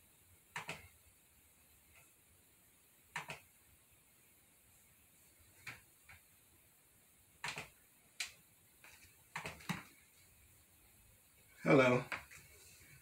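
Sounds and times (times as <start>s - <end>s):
faint sharp clicks and taps: 7.4s - 10.2s.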